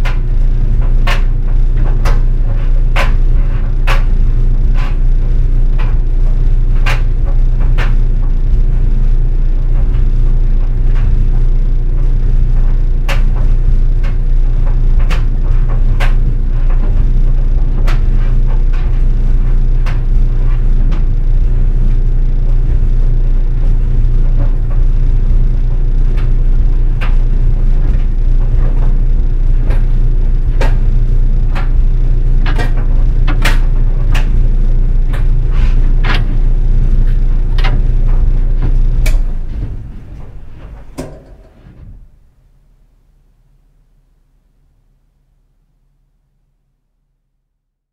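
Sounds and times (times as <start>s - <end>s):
clothes dryer humming: 0.0s - 43.4s.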